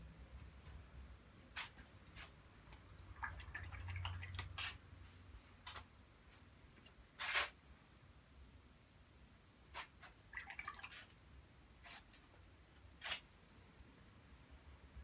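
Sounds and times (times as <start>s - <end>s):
paintbrush brushing and dabbing: 3.2s - 6.4s.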